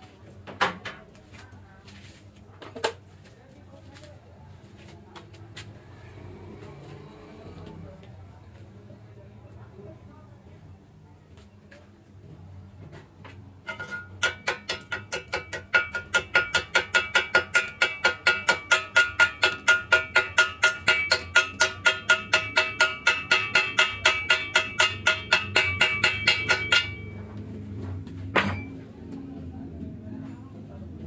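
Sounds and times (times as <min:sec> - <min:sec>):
chipping hammer tapping metal tube: 0:13.6 - 0:27.2.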